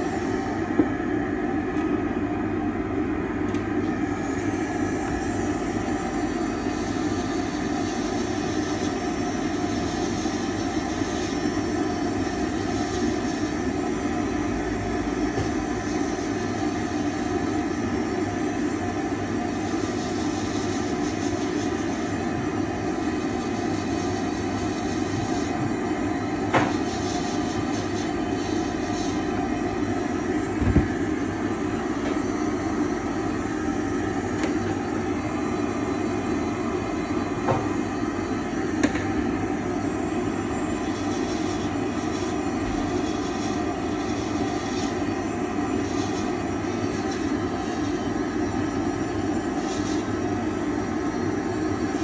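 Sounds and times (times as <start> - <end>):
dust extractor droning: 0.0 - 52.0.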